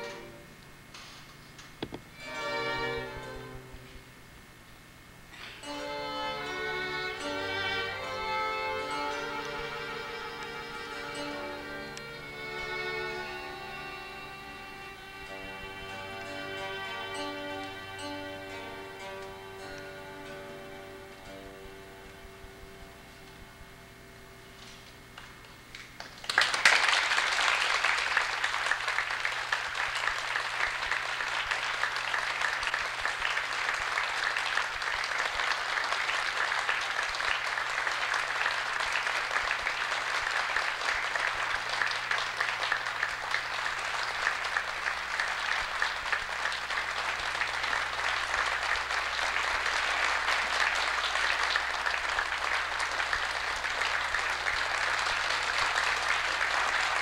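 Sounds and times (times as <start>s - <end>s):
audience applauding: 6.4s - 18.1s, 25.2s - 57.0s.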